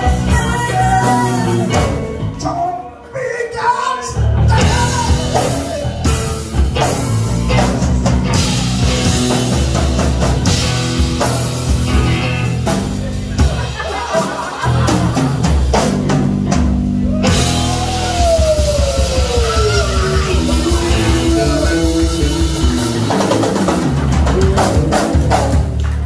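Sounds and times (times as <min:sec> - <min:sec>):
female lead vocal: 0:00.0 - 0:02.3, 0:03.2 - 0:05.9, 0:07.2 - 0:08.6, 0:17.8 - 0:23.2
rock band playing: 0:00.0 - 0:03.1, 0:04.0 - 0:26.0
drum strikes: 0:04.6 - 0:25.9.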